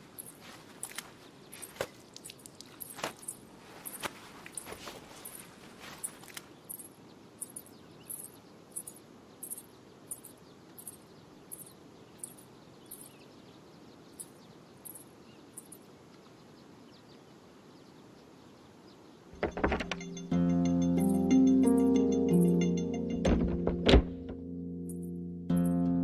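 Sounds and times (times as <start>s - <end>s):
cricket chirping: 0.0s - 13.2s, 14.1s - 16.0s
faint bird chirps: 0.0s - 20.2s
low outdoor hiss: 0.0s - 26.0s.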